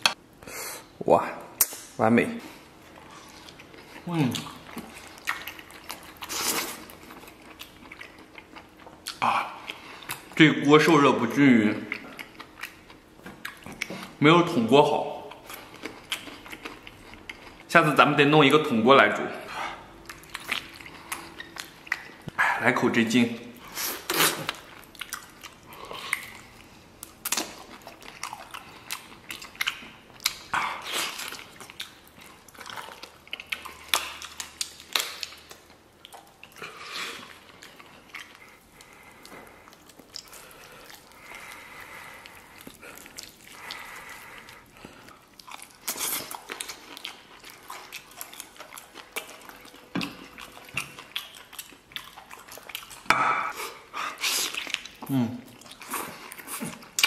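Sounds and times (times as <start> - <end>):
person biting and chewing: 23.6 - 57.0.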